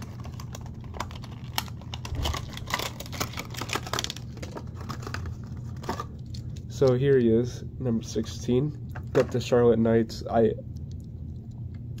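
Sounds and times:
plastic packaging clicks and crackles: 0:00.0 - 0:07.2
steady low hum: 0:00.0 - 0:12.0.

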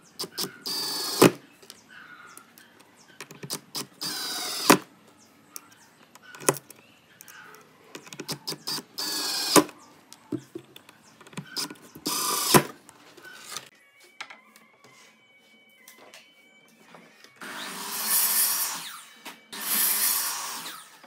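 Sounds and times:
cordless driver whirring: 0:00.3 - 0:01.4, 0:03.7 - 0:04.8, 0:08.1 - 0:09.8, 0:11.6 - 0:12.7.

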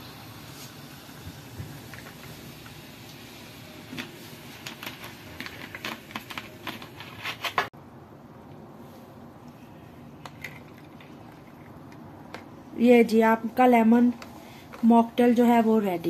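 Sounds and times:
soda fizzing over ice: 0:00.0 - 0:05.2.

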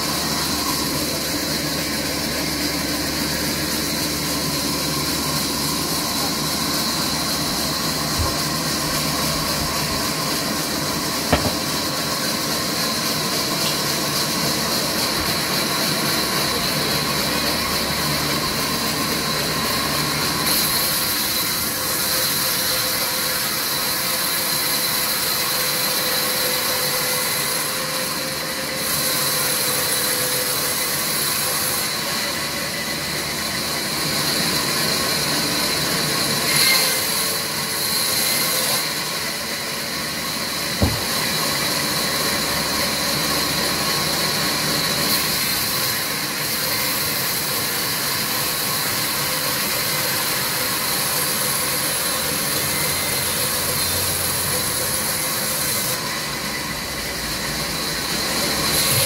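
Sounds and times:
band saw cutting log: 0:00.0 - 0:59.0
sharp knock: 0:11.3 - 0:12.0, 0:40.8 - 0:41.3.

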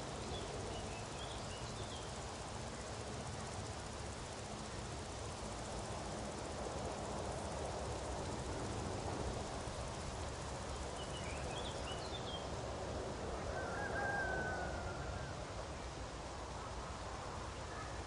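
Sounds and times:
steady rushing noise: 0:00.0 - 0:13.5.

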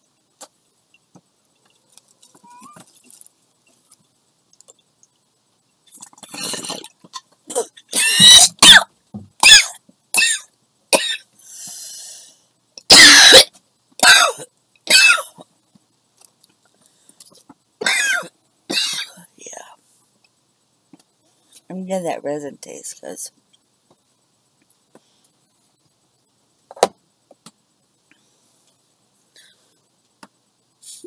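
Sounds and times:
woman coughing: 0:07.5 - 0:11.3, 0:12.9 - 0:15.4, 0:17.8 - 0:19.3
breathy exhale: 0:11.4 - 0:12.5.

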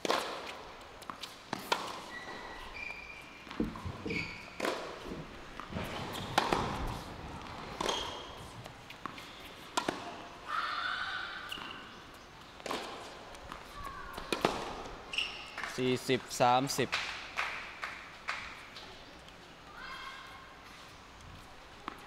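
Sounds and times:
tennis ball struck by rackets: 0:04.6 - 0:10.2, 0:12.6 - 0:15.0.

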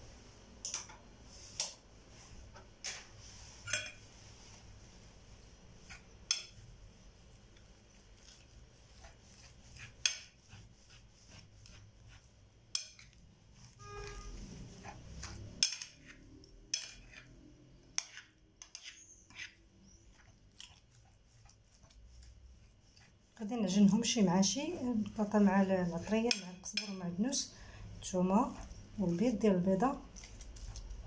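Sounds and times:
metal spoon clinking on ceramic dish: 0:03.7 - 0:04.0, 0:15.6 - 0:16.0, 0:16.7 - 0:17.2.

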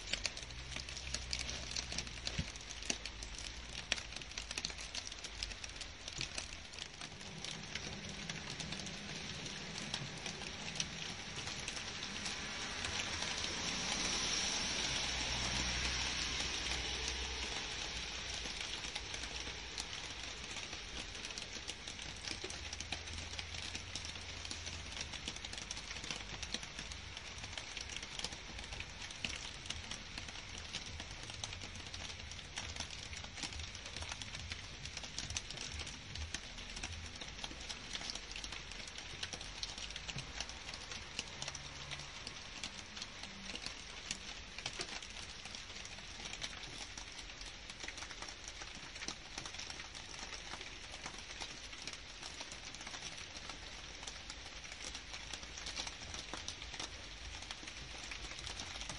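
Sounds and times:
rain pattering on foliage: 0:00.0 - 0:58.9.

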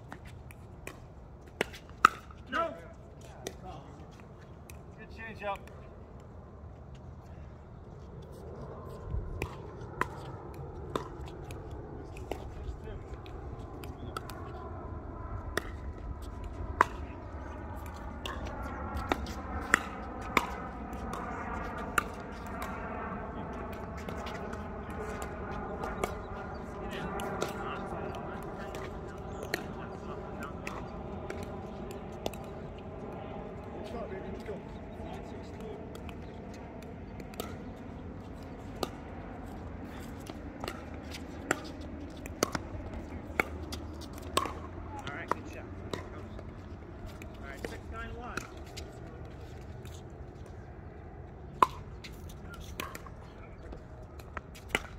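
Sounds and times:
steady low rumble: 0:02.2 - 0:54.9
paddles hitting plastic ball: 0:23.7 - 0:32.9, 0:34.3 - 0:50.1.

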